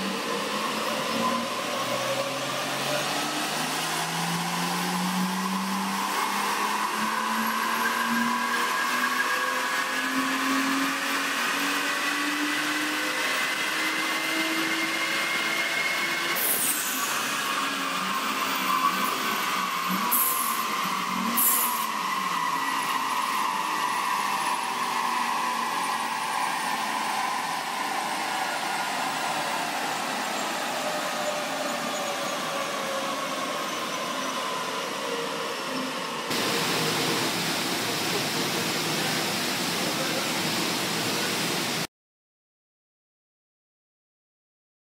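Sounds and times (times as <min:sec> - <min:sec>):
loud rushing noise: 0:36.3 - 0:41.9.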